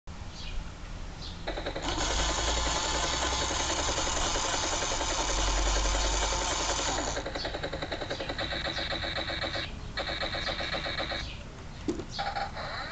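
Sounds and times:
toy helicopter rotor effect: 0:01.5 - 0:11.3, 0:12.2 - 0:12.9
steady high whine: 0:01.5 - 0:11.4.

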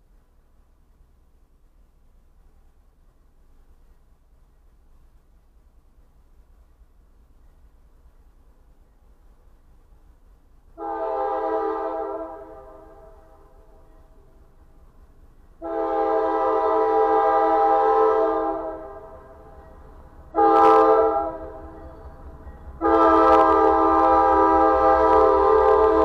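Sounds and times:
locomotive air horn blasts: 0:10.8 - 0:13.6, 0:15.6 - 0:19.4, 0:20.3 - 0:21.7, 0:22.8 - 0:26.0.

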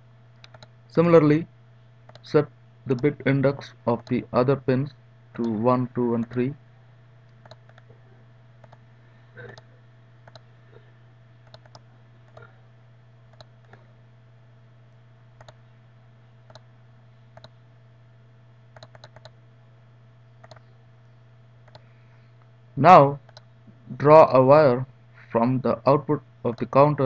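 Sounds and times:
steady low hum: 0:00.0 - 0:27.0
computer mouse buttons clicking: 0:00.4 - 0:00.7, 0:02.1 - 0:02.3, 0:07.4 - 0:07.9, 0:08.6 - 0:08.8, 0:09.5 - 0:10.5, 0:11.4 - 0:12.5, 0:13.3 - 0:13.8, 0:15.4 - 0:15.6, 0:16.5 - 0:16.7, 0:17.4 - 0:17.6, 0:18.8 - 0:19.4, 0:20.4 - 0:20.7, 0:21.6 - 0:21.9, 0:23.2 - 0:23.5.

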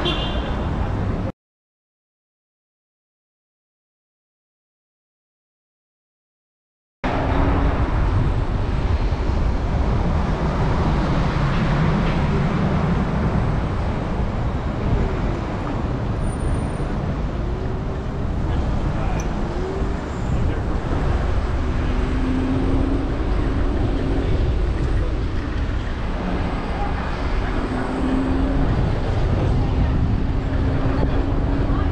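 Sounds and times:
traffic rumble: 0:00.0 - 0:01.3, 0:07.0 - 0:31.9.

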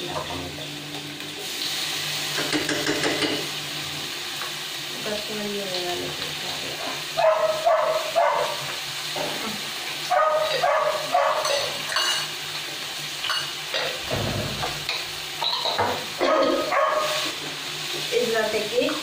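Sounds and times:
oil sizzling in a pan: 0:00.0 - 0:19.0
dog barking: 0:07.2 - 0:08.7, 0:10.1 - 0:11.8, 0:16.2 - 0:17.3.

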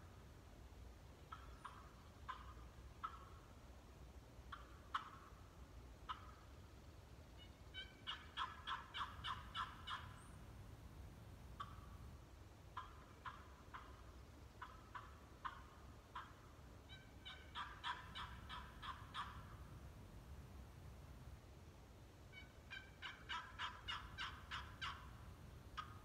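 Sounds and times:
turkey call clucks: 0:01.3 - 0:03.5, 0:04.5 - 0:05.4, 0:06.0 - 0:06.6, 0:07.4 - 0:10.4, 0:11.6 - 0:12.1, 0:12.7 - 0:19.7, 0:22.3 - 0:26.0
turkey call yelps: 0:01.3 - 0:03.5, 0:04.5 - 0:05.4, 0:06.0 - 0:06.4, 0:07.4 - 0:10.4, 0:11.6 - 0:12.0, 0:12.8 - 0:19.7, 0:22.3 - 0:25.2, 0:25.8 - 0:26.0.

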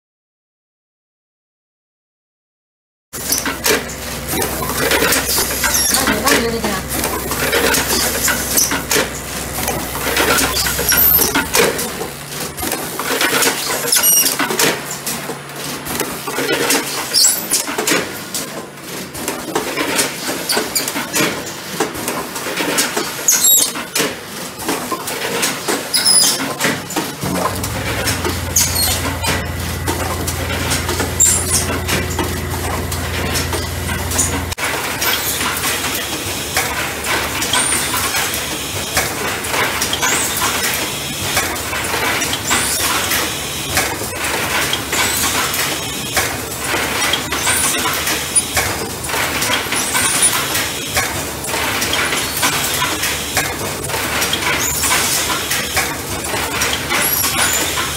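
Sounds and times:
machine clattering: 0:03.2 - 0:57.9
high squeaks: 0:04.3 - 0:11.9, 0:27.2 - 0:34.6.

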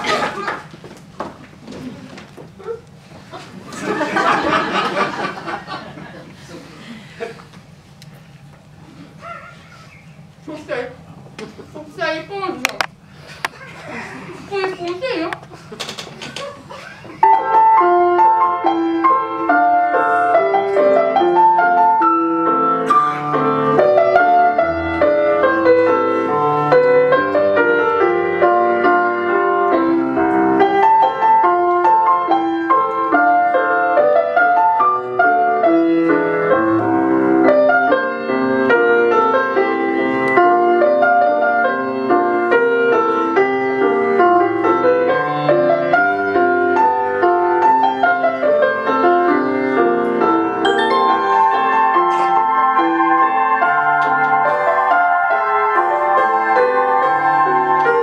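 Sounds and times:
piano music: 0:17.2 - 0:58.0.

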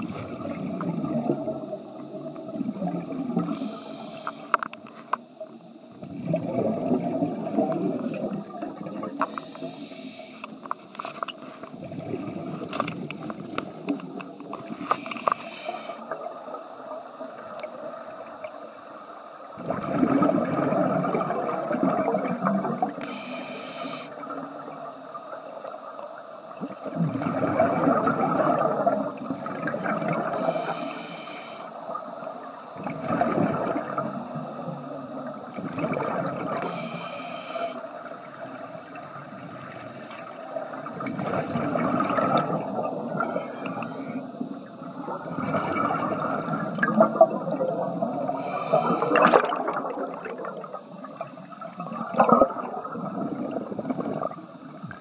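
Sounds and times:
exhaled air bubbling: 0:00.0 - 0:04.0, 0:05.4 - 0:09.8, 0:11.7 - 0:15.4, 0:19.4 - 0:23.3, 0:24.0 - 0:30.9, 0:31.7 - 0:37.0, 0:38.0 - 0:55.0
regulator inhalation hiss: 0:03.4 - 0:04.7, 0:09.2 - 0:10.7, 0:14.8 - 0:16.3, 0:22.2 - 0:26.8, 0:30.3 - 0:32.8, 0:36.6 - 0:38.6, 0:42.6 - 0:44.4, 0:48.3 - 0:49.4.

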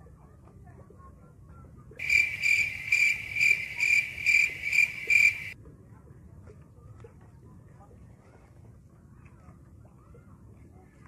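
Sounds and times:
cricket chirping: 0:02.0 - 0:05.6.

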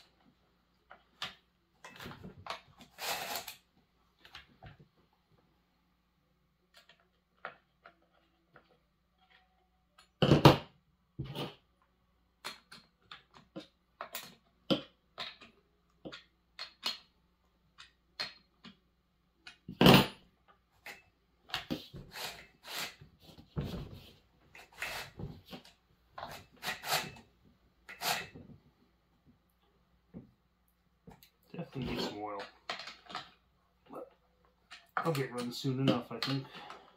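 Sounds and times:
metal and plastic clicks and knocks: 0:11.2 - 0:21.9, 0:31.0 - 0:33.5.

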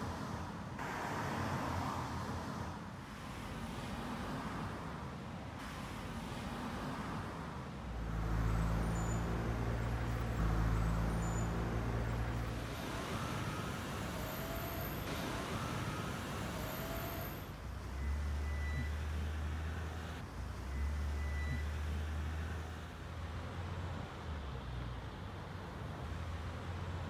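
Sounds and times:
car engines humming: 0:01.6 - 0:27.0
short rising squeaks: 0:08.4 - 0:20.1.

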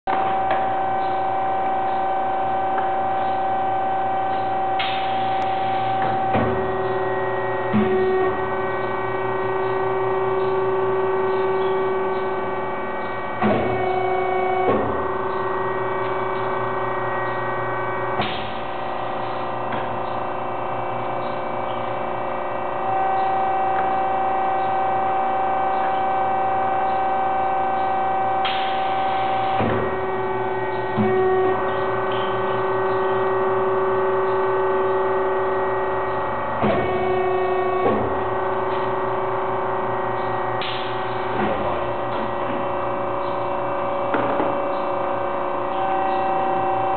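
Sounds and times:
printing machine humming and whining: 0:00.1 - 0:46.9
machine clunks: 0:04.3 - 0:07.0, 0:13.0 - 0:15.4, 0:29.5 - 0:30.0, 0:36.2 - 0:39.0.

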